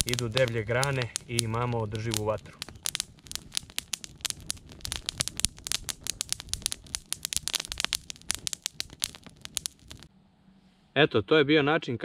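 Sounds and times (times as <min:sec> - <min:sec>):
dry grass crackling in flame: 0:00.0 - 0:10.1.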